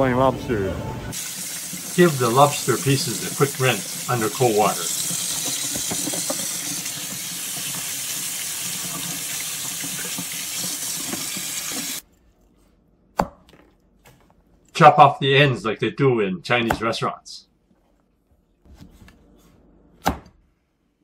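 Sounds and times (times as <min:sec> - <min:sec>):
tap water running into sink: 0:01.1 - 0:12.0.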